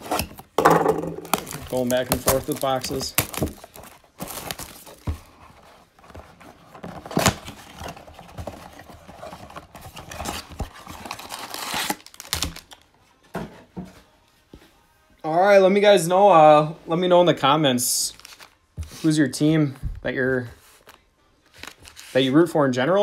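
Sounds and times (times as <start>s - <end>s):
cardboard tearing: 0.0s - 0.6s, 1.2s - 12.8s
foil wrappers crinkling: 1.2s - 5.2s, 7.0s - 12.9s.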